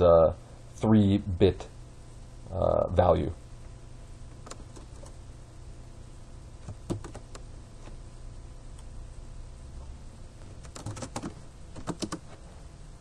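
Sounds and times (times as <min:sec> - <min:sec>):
low steady hum: 0:00.0 - 0:13.0
keyboard typing: 0:04.3 - 0:05.2, 0:06.6 - 0:07.5, 0:10.6 - 0:12.3.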